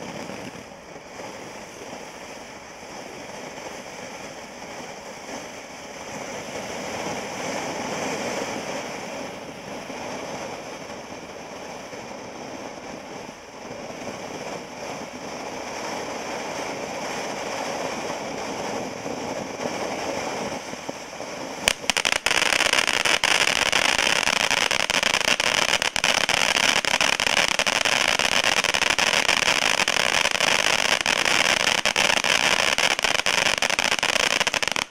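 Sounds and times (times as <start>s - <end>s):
fireworks fountain hissing: 0.0s - 34.9s
sharp crack: 21.6s - 34.9s.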